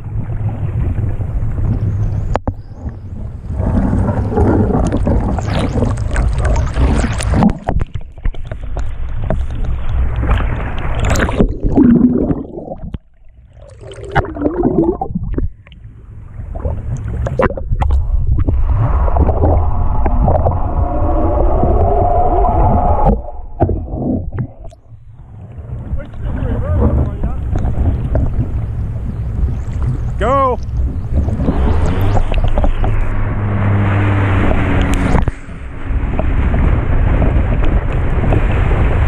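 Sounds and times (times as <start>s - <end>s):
muffled underwater gurgling: 0.0s - 8.3s, 10.6s - 33.2s
water splashing and sloshing: 0.0s - 39.0s
wind rumble on microphone: 0.0s - 39.0s.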